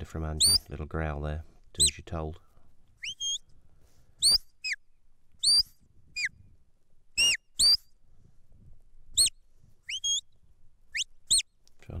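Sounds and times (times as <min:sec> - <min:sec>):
shepherd's whistle notes: 0:00.4 - 0:00.6, 0:03.0 - 0:03.5, 0:04.2 - 0:04.8, 0:05.4 - 0:06.4, 0:07.2 - 0:07.9, 0:09.2 - 0:10.3, 0:10.9 - 0:11.5.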